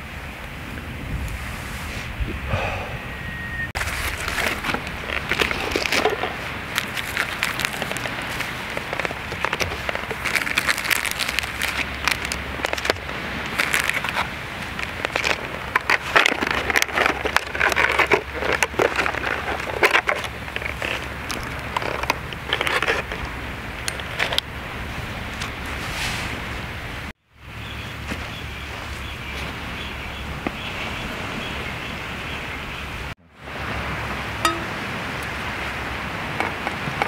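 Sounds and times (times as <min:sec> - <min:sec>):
bag rustling and crinkling: 0:03.8 - 0:23.3.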